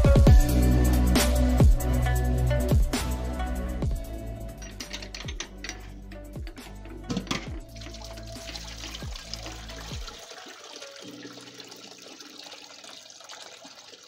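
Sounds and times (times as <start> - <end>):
background music: 0.0 - 14.0
liquid pouring through strainer: 7.6 - 14.0.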